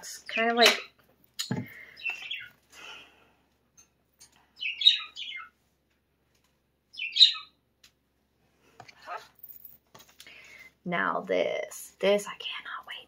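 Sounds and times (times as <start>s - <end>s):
small birds chirping: 0.0s - 3.1s, 4.2s - 5.6s, 6.8s - 7.6s.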